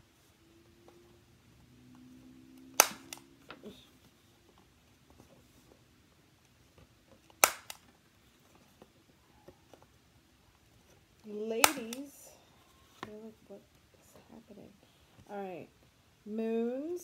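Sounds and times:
cardboard packaging snapping: 2.8 - 3.2, 7.3 - 7.8.

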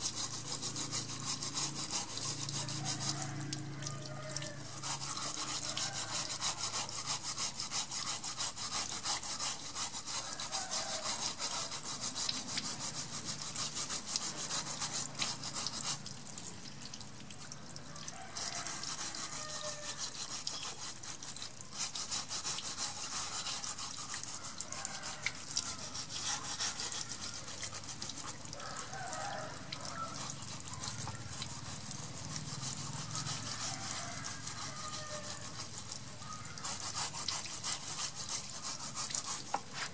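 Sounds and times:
sponge scrubbing a shell: 0.0 - 16.4, 17.1 - 39.9
water trickling: 0.0 - 39.9.

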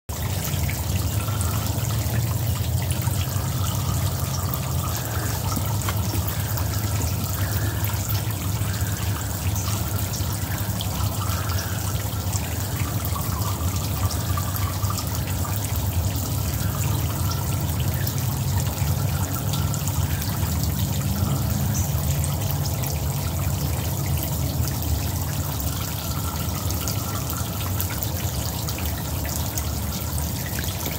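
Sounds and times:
water trickling and splashing: 0.1 - 30.9.

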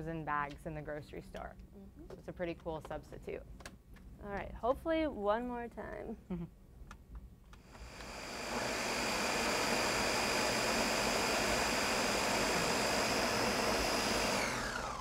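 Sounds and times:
blender motor whining: 7.6 - 15.0.

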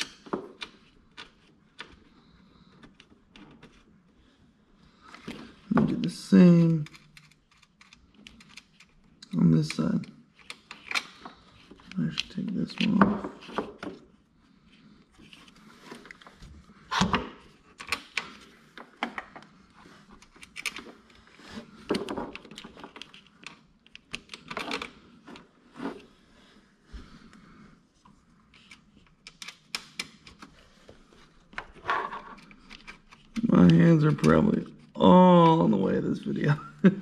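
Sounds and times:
small parts clicking and rattling: 6.6 - 13.0.

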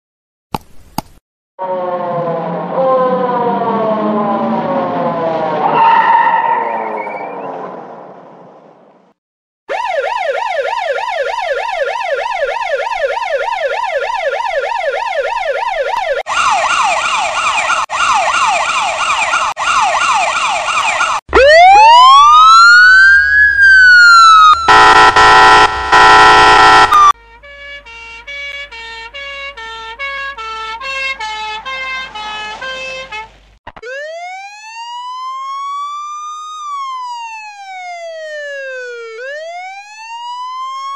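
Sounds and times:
loud blaring horn blast: 1.6 - 7.4, 24.7 - 33.3
siren yelp: 1.6 - 7.9, 9.7 - 27.2, 33.8 - 40.9
warbling siren tone: 1.6 - 8.2, 9.7 - 27.2, 33.8 - 40.9
siren wail: 1.6 - 8.3, 9.7 - 32.3, 33.8 - 40.9.

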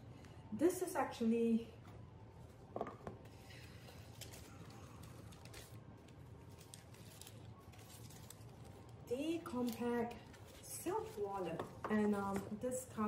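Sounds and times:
tissue paper rustling: 3.2 - 11.6.

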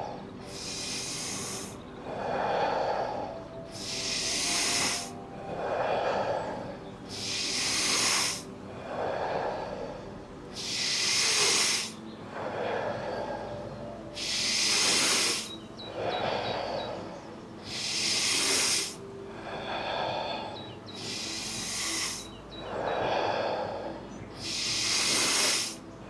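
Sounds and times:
person breathing deeply: 0.0 - 26.0.

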